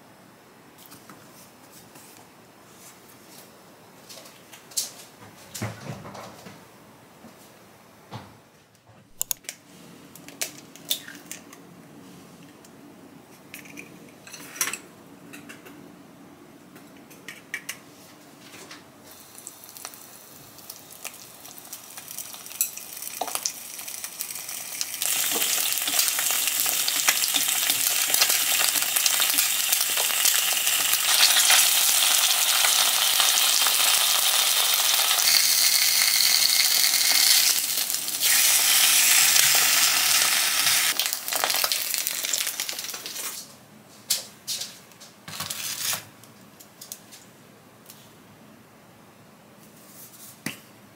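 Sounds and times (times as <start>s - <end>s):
food frying in a pan: 19.1s - 43.3s.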